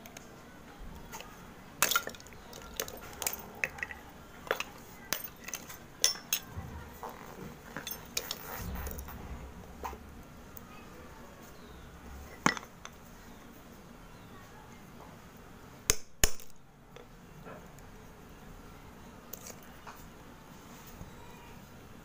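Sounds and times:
clay flakes cracking and clinking: 1.0 - 9.2, 19.3 - 20.1.

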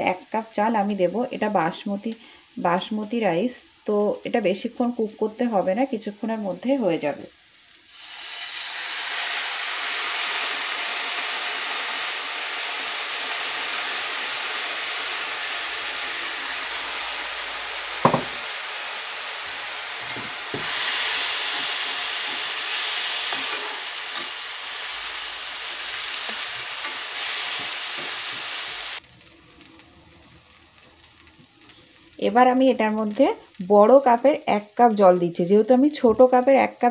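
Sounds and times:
rice sizzling in hot oil: 0.0 - 36.9
knocks against pan: 18.0 - 18.4.

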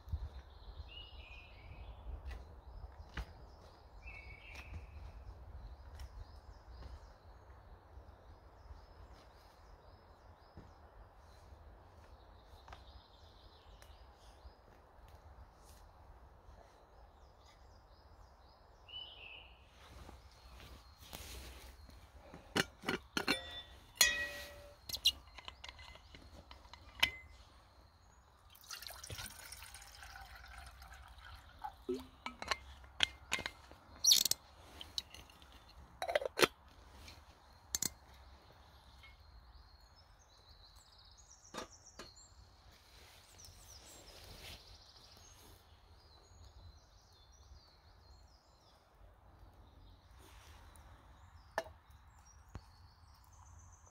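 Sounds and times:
camp cookware clinking: 22.2 - 27.5, 28.6 - 38.2
liquid trickling and pouring: 28.5 - 32.6.

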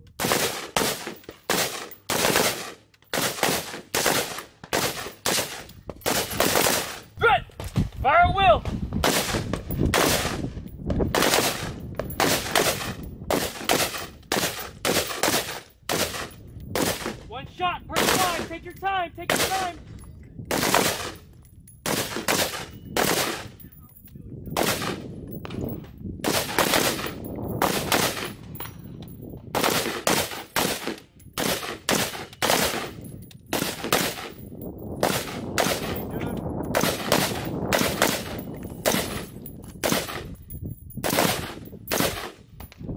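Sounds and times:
rifle single shots: 0.2 - 7.0, 9.0 - 10.4, 11.1 - 17.2, 19.3 - 19.7, 20.5 - 21.2, 21.8 - 23.6, 24.6 - 25.0, 26.2 - 28.4, 29.5 - 34.4, 35.0 - 40.3, 41.0 - 42.4.

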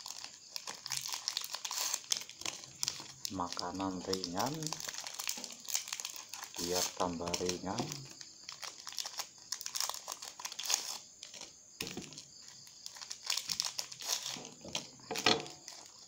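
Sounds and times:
plastic wrapper crinkling: 0.0 - 16.0.

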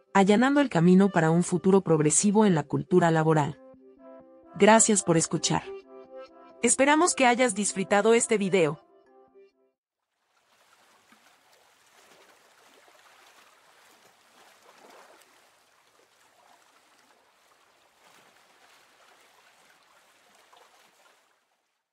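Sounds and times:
rushing water: 10.1 - 21.9.

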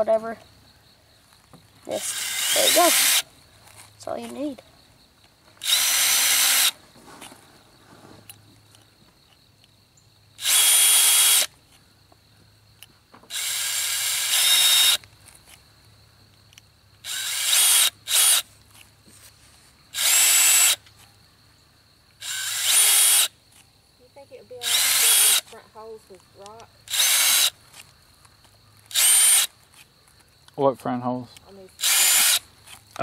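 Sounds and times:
cordless drill motor whining: 1.9 - 3.3, 5.6 - 6.8, 10.4 - 11.5, 13.3 - 15.1, 17.0 - 18.4, 19.9 - 20.8, 22.2 - 23.3, 24.6 - 25.6, 26.8 - 27.6, 28.8 - 29.5, 31.8 - 32.8.

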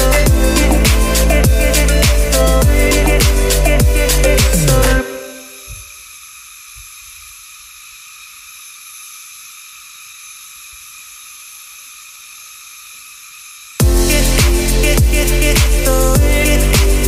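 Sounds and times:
music: 0.0 - 5.6, 13.8 - 17.0
insects chorus shrilling: 0.0 - 17.0.

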